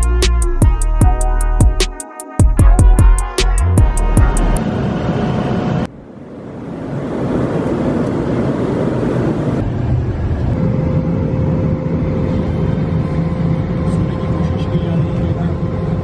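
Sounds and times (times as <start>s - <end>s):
jet airliner cabin drone: 3.2s - 16.0s.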